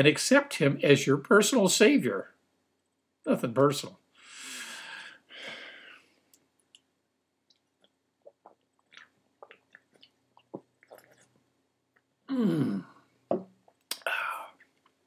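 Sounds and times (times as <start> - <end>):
voiced breath out: 4.2 - 6.2, 14.0 - 14.6
man gulping from a bottle: 6.8 - 15.0.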